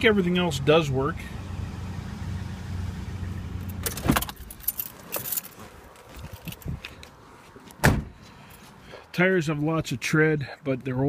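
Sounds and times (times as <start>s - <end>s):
car door shutting: 3.7s - 4.5s, 7.8s - 8.2s.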